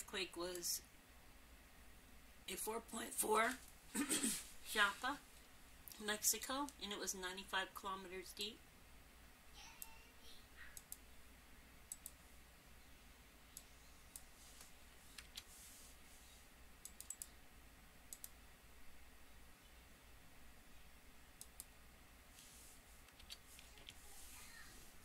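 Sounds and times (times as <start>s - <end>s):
faint steady hum: 0.0s - 25.0s
low room hiss: 0.0s - 25.0s
computer mouse clicks: 10.8s - 11.0s, 11.9s - 12.2s, 15.1s - 15.5s, 16.8s - 17.3s, 18.1s - 18.4s, 21.4s - 21.7s, 23.1s - 24.0s.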